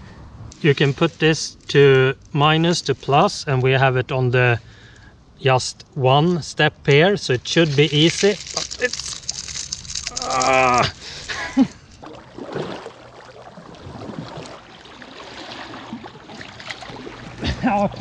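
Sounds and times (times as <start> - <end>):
water sloshing and splashing: 7.5 - 18.0.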